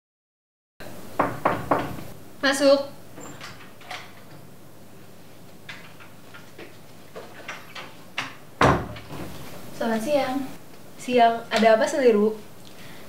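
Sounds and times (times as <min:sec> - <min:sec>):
door opening clicks: 0:03.2 - 0:04.5.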